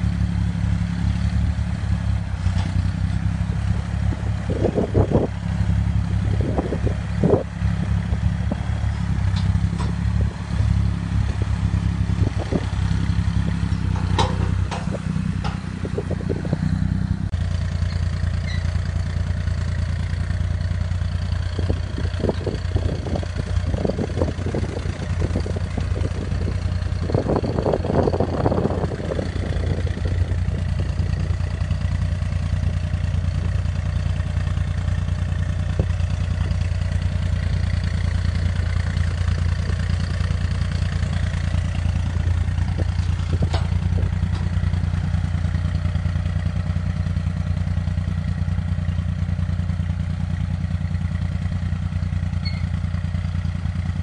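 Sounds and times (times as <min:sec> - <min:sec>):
tractor diesel engine running: 0:00.0 - 0:54.0
grader blade knocking and clattering: 0:13.6 - 0:16.1, 0:42.6 - 0:44.8.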